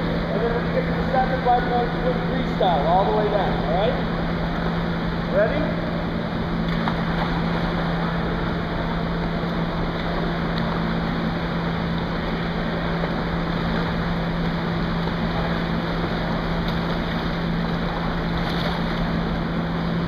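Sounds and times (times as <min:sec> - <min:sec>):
low hum: 0:00.0 - 0:20.0
water splashing in pool: 0:06.5 - 0:20.0.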